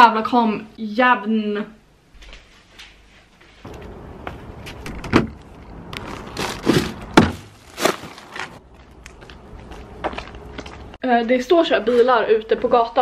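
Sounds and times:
knocks and thuds: 6.6 - 8.1.

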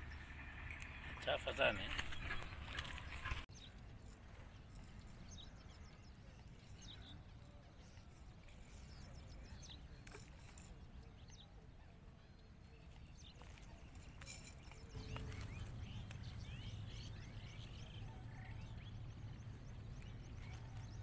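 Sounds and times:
small birds chirping: 0.0 - 21.0
low steady rumble: 14.8 - 21.0.

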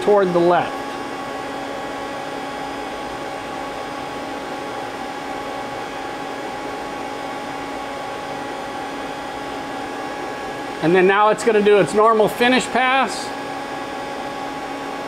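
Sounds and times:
machine hum with fixed tones: 0.0 - 15.0.

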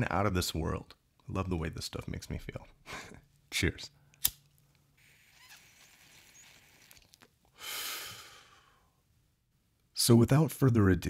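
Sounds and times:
person inhaling smoke: 6.2 - 9.0
breathy exhale: 7.5 - 9.0.

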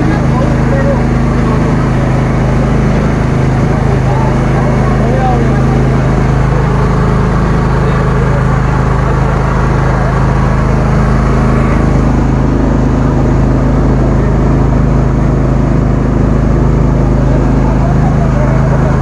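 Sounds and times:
motorboat engine droning: 0.0 - 19.0
water splashing along hull: 0.0 - 19.0.

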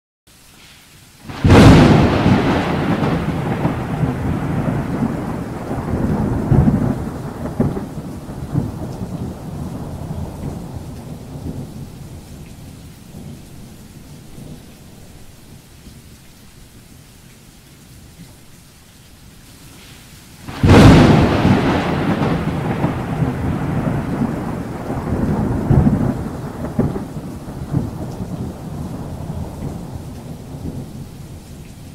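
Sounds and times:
thunderclap and rolling rumble: 1.3 - 15.3, 20.5 - 31.9.

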